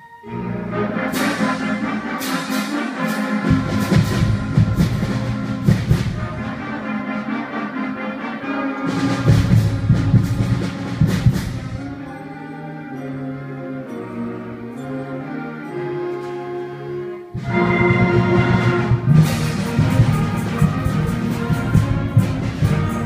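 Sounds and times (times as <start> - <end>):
concert band playing: 0.0 - 23.0
drum and cymbal strikes: 1.1 - 6.4, 8.9 - 12.0, 19.1 - 23.0.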